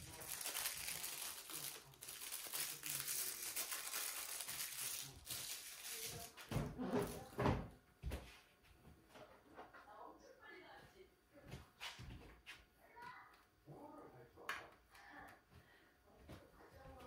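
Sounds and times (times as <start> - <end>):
plastic film crinkling and tearing: 0.0 - 6.4.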